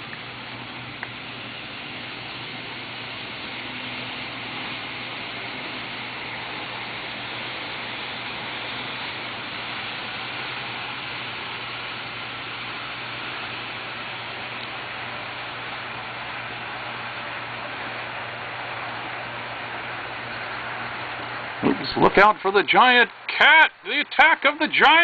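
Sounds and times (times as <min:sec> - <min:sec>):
model train rushing hiss: 0:00.0 - 0:25.0.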